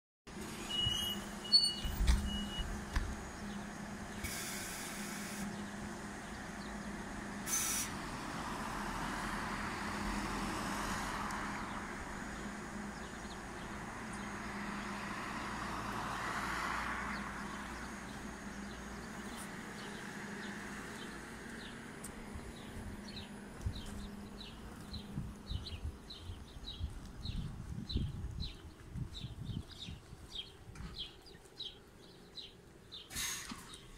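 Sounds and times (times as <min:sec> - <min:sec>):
electric bus hum and whine: 0:00.3 - 0:33.9
compressed air hisses: 0:04.1 - 0:05.5, 0:07.4 - 0:08.0, 0:33.1 - 0:33.8.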